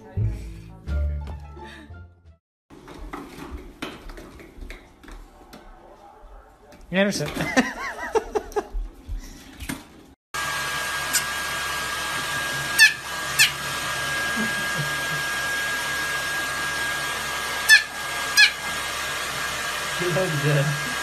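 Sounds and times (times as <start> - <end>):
hair dryer running: 10.4 - 21.0
small dog yapping: 17.6 - 18.6.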